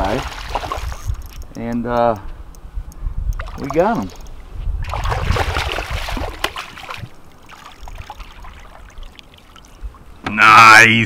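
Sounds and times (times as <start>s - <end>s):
fish thrashing and splashing water: 0.0s - 1.2s, 3.4s - 9.8s.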